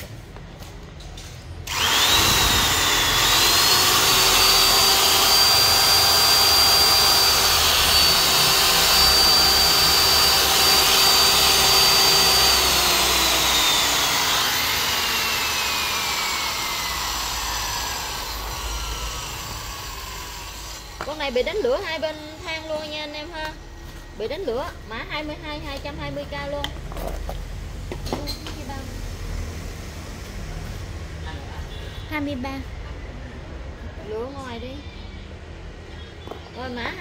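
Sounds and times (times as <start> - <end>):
electric drill motor whining: 1.6 - 23.2.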